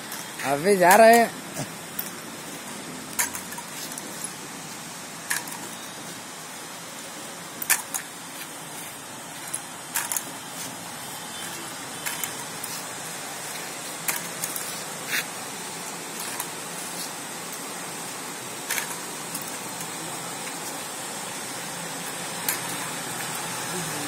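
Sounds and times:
background hiss: 0.0 - 24.0
walking frame clinking: 9.3 - 15.2, 18.6 - 20.8, 22.0 - 24.0.

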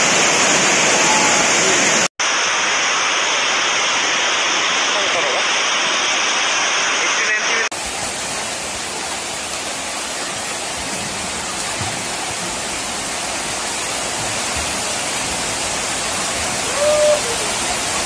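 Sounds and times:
heavy rain on sheet roofs: 0.0 - 18.0
person calling out: 16.6 - 17.6.

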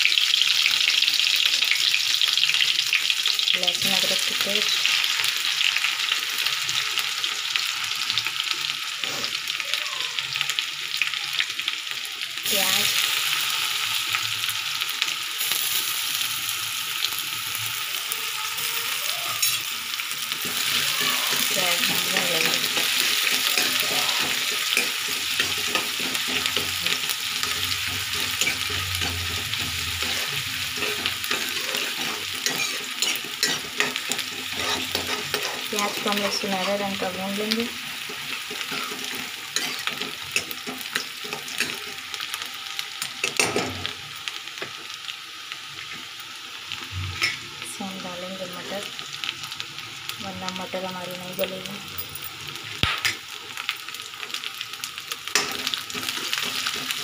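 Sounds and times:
paste sizzling in hot oil: 0.0 - 57.0
spatula scraping metal pan: 20.4 - 42.0.

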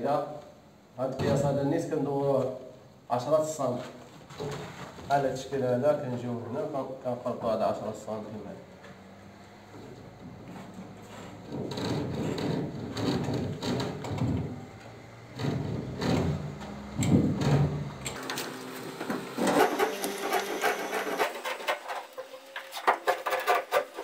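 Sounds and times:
ruler scraping plaster ceiling: 19.1 - 24.0.

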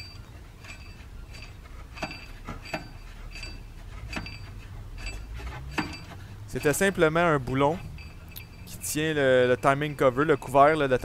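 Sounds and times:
low steady hum: 0.0 - 11.0
light metallic ticks: 2.0 - 9.0.

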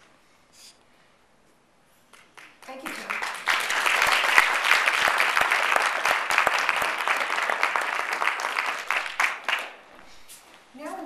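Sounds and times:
audience applauding: 2.2 - 9.9.

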